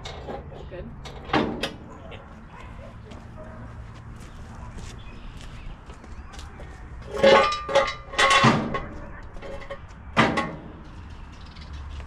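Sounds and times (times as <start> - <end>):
metal clanking with ringing tone: 7.1 - 8.9.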